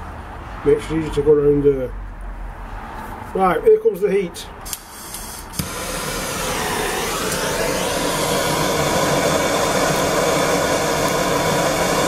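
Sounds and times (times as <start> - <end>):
gas blowtorch hissing: 4.6 - 12.0.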